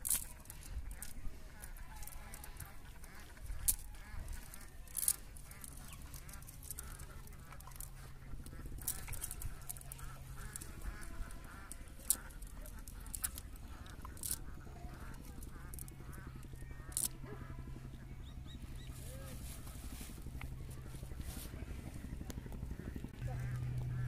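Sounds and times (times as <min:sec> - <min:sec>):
net sinkers clicking: 0:00.0 - 0:17.2
bird calling: 0:00.0 - 0:24.0.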